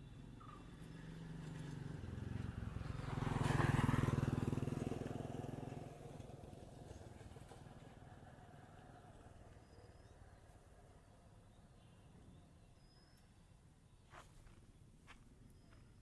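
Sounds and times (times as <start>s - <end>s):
vehicle engine passing by: 0.5s - 9.4s.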